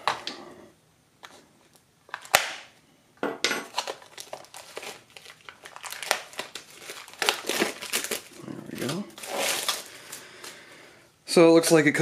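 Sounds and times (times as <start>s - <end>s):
plastic packaging crinkling and tearing: 2.1s - 2.7s, 3.7s - 10.7s.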